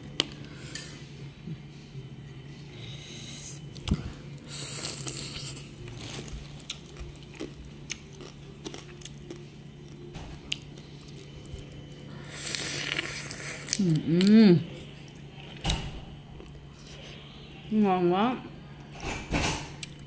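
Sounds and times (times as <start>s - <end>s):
low steady hum: 0.0s - 20.0s
person chewing: 3.2s - 15.6s.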